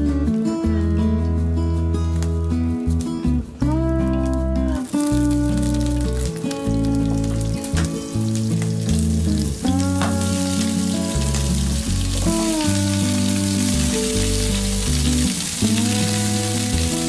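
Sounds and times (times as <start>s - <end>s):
background music with bass line: 0.0s - 17.0s
potatoes sizzling in frying pan: 3.7s - 17.0s.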